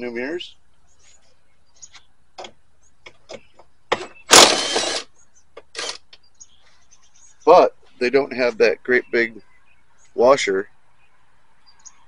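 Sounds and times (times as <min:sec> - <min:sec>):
hardware clicks and taps: 0:01.8 - 0:04.1.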